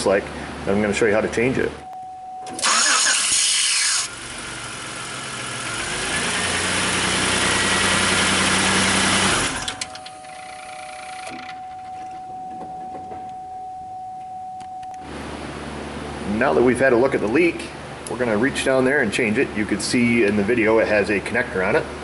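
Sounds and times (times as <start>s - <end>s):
engine cranking and running: 2.5s - 11.6s.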